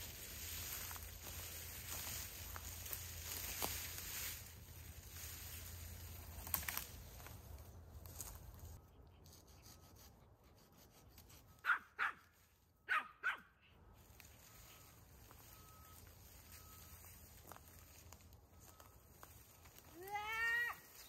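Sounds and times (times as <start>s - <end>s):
small dog barking: 11.6s - 12.2s, 12.9s - 13.5s.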